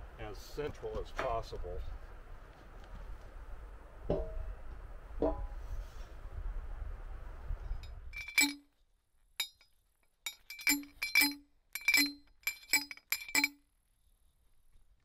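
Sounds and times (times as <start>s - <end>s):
metal stake clanking: 7.8s - 8.7s, 9.4s - 13.7s.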